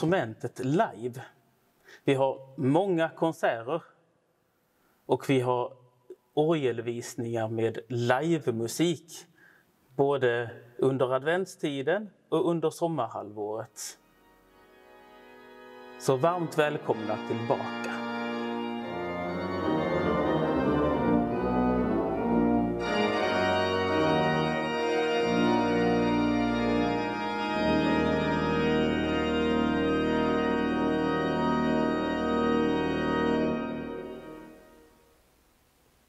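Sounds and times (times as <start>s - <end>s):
held organ chord over pedal note: 14.0s - 34.8s
pipe organ playing: 14.0s - 35.0s.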